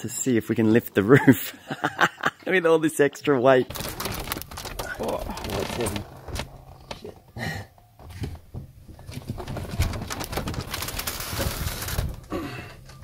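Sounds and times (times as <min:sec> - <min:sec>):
fabric rustling: 0:03.7 - 0:07.2, 0:08.4 - 0:12.3
roof frame knocking and creaking: 0:03.7 - 0:13.0.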